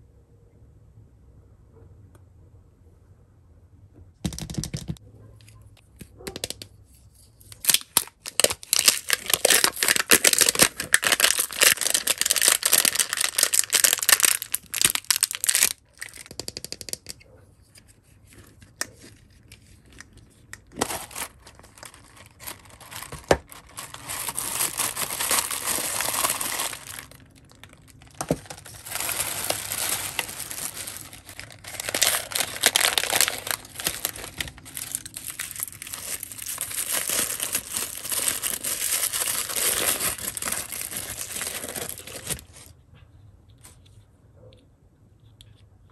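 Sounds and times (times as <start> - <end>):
plastic wrapping crinkling: 7.5 - 16.5, 18.2 - 42.7.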